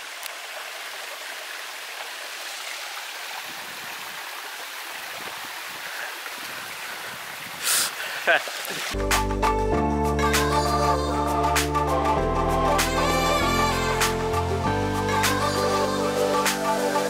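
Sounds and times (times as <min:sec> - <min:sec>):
water rushing over rock: 0:00.0 - 0:09.0.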